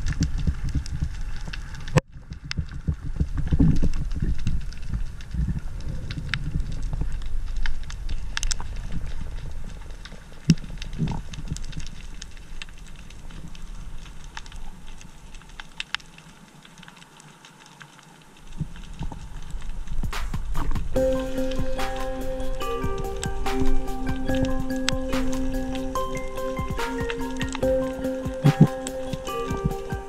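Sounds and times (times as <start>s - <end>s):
sharp underwater clicks and crackles: 0.0s - 21.0s.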